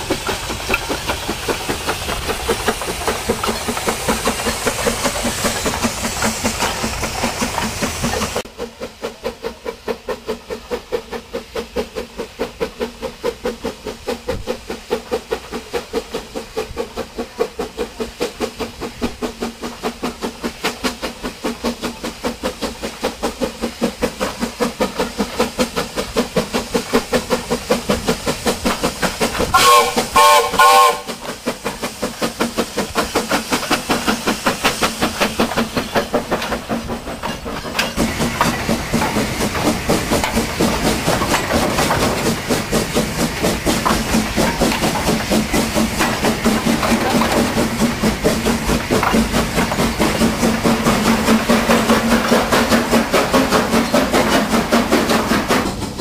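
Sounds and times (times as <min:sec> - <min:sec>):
steam locomotive exhaust chuffing: 0:00.0 - 0:56.0
wagons clattering over rail joints: 0:00.0 - 0:56.0
steam whistle blasts: 0:29.5 - 0:31.2.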